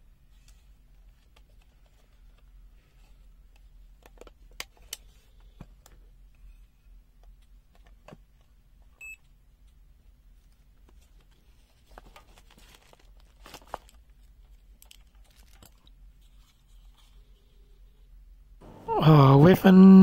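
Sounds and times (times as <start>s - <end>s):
multimeter beep: 9.0s - 9.2s.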